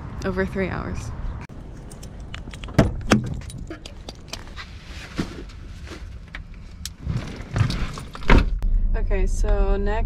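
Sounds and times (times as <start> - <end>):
keys jangling: 1.6 - 3.8.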